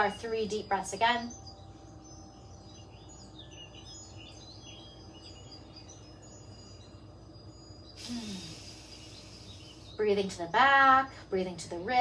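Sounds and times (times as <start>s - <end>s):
faint bird chirps: 0.0s - 11.6s
low steady room hum: 0.0s - 12.0s
deep breath airy hiss: 8.0s - 10.0s.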